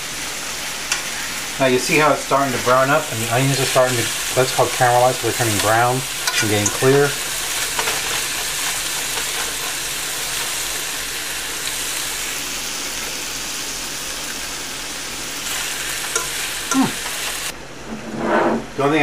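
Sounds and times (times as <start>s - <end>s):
meat and onions sizzling in a pan: 0.0s - 17.6s.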